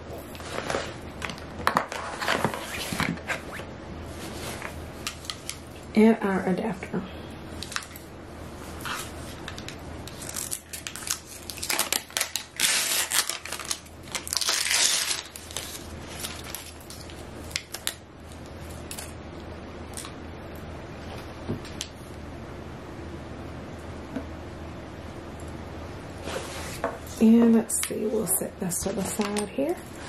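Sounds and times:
paper wrapping crinkling and tearing: 0:08.8 - 0:18.0.

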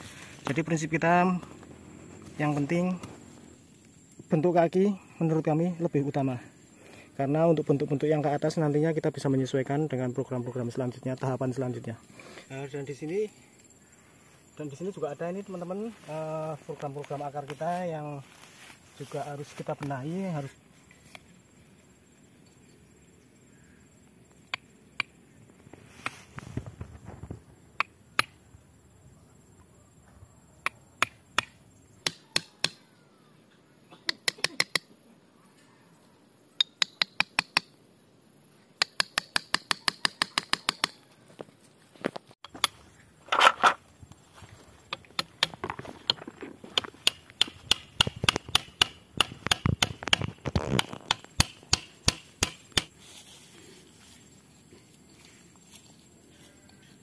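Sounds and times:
knife chopping into woody roots: 0:46.8 - 0:53.0.

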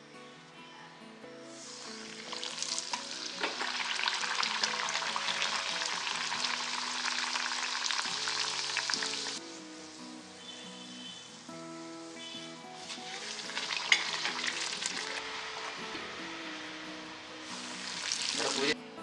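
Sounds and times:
dough deep-frying in hot oil: 0:01.8 - 0:09.4, 0:12.9 - 0:15.7, 0:17.6 - 0:18.8.

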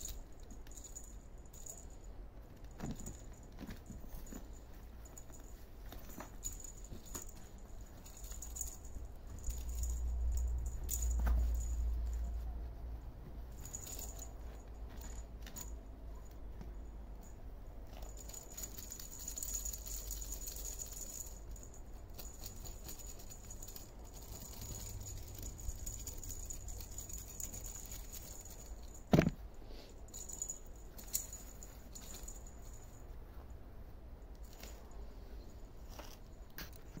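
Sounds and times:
toy balls rattling and clicking: 0:02.6 - 0:11.9, 0:17.9 - 0:29.1.

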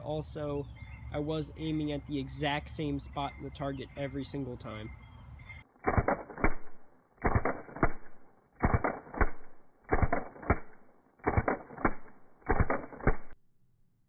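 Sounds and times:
airsoft pistol shots: 0:05.8 - 0:13.4.

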